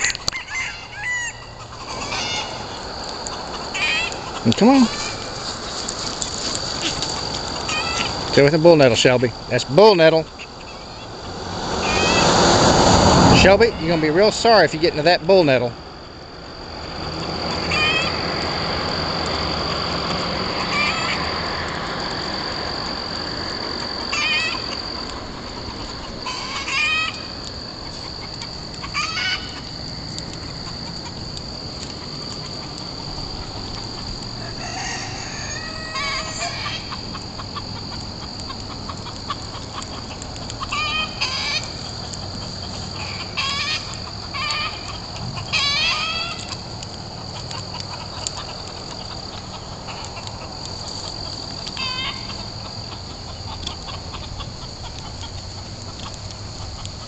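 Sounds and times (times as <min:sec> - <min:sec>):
high-pitched insect drone: 0:00.0 - 0:55.6
rustling noise: 0:02.7 - 0:08.8.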